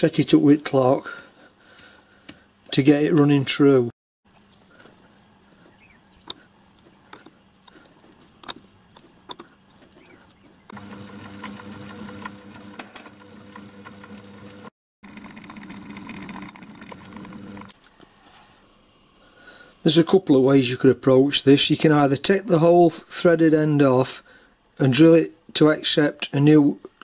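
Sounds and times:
lathe motor hum: 0:10.7 - 0:17.8.

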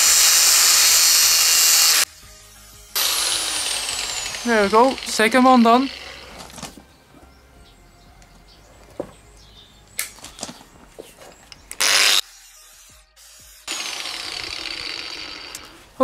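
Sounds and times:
angle grinder cutting brass: 0:00.0 - 0:06.6, 0:11.8 - 0:15.8.

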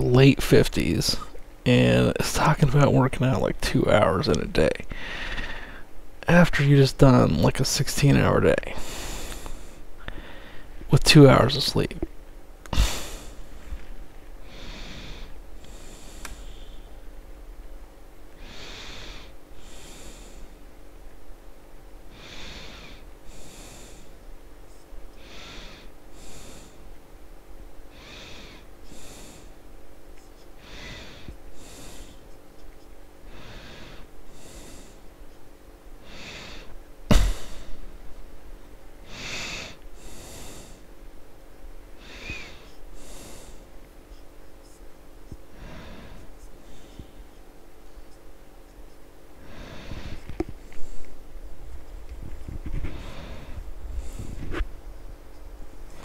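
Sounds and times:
faint steady hum: 0:00.0 - 0:56.0
person breathing: 0:04.8 - 0:06.0, 0:08.7 - 0:10.8, 0:12.7 - 0:17.1, 0:18.4 - 0:20.6, 0:22.1 - 0:24.2, 0:25.1 - 0:26.9, 0:27.9 - 0:29.6, 0:30.6 - 0:32.4, 0:33.2 - 0:35.1, 0:36.0 - 0:37.9, 0:39.0 - 0:40.9, 0:42.0 - 0:43.8, 0:45.4 - 0:47.4, 0:49.4 - 0:51.2, 0:51.8 - 0:54.6.

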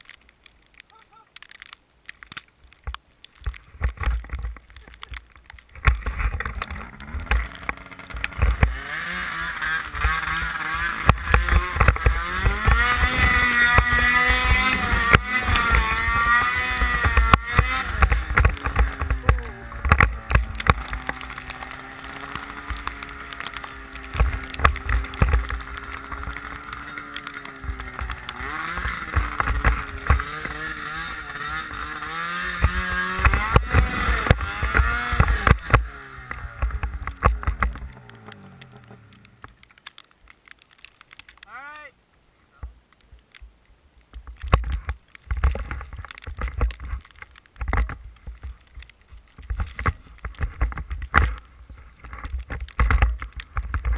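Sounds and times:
snowmobile engine revving: 0:06.0 - 0:39.5.

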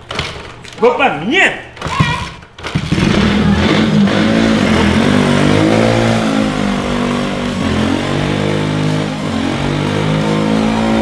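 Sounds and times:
motorcycle engine revving: 0:02.7 - 0:11.0.

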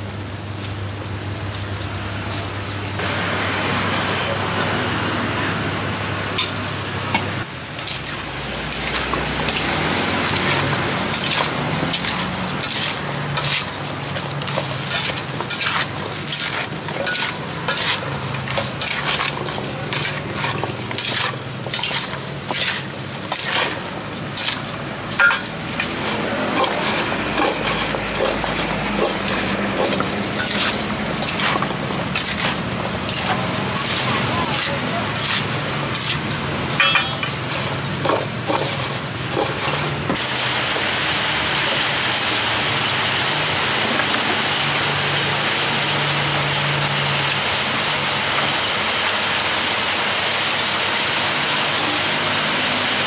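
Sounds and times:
fruit tossed in a metal bowl: 0:07.8 - 0:42.4.

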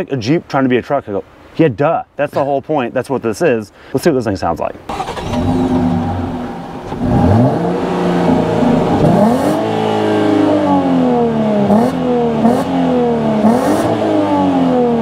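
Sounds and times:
car engine idling and revving: 0:04.9 - 0:15.0.

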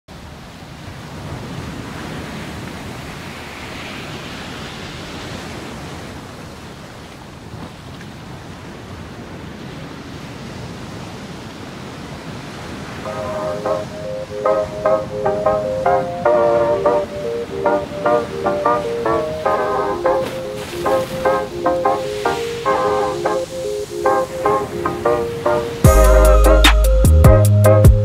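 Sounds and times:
ocean waves and surf: 0:00.1 - 0:28.0
music: 0:13.1 - 0:28.0.

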